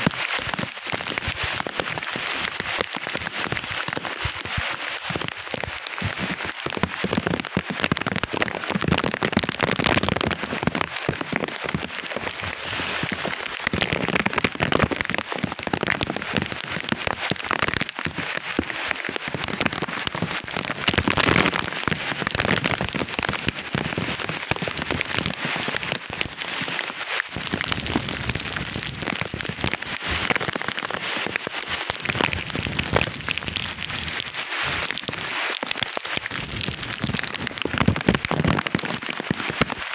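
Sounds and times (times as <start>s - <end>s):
heavy rain pouring: 0.0s - 39.9s
storm wind gusting through plants: 17.6s - 39.9s.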